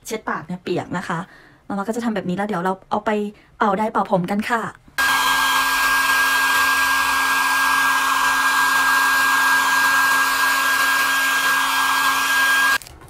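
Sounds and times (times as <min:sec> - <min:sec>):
hair dryer running: 0:05.0 - 0:12.8.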